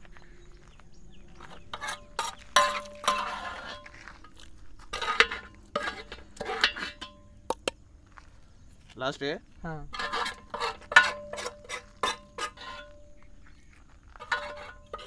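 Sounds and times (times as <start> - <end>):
steel ladle clinking on pot: 5.1 - 7.7, 10.0 - 12.9.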